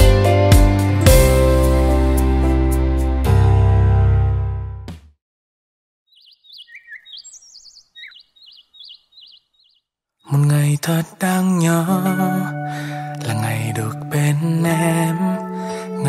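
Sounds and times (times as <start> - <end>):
loud music: 0.0 - 4.4
small bird chirping: 6.1 - 10.3.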